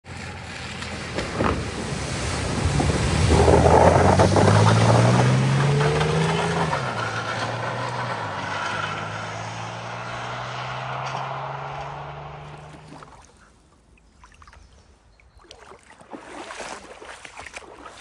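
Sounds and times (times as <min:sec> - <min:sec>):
vehicle engine: 0:00.0 - 0:13.7
water splashing: 0:00.1 - 0:08.2, 0:08.8 - 0:18.0.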